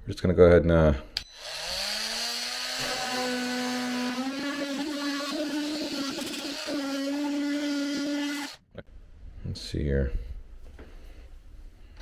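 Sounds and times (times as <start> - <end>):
oscillating multi-tool cutting plastic: 1.2 - 8.6.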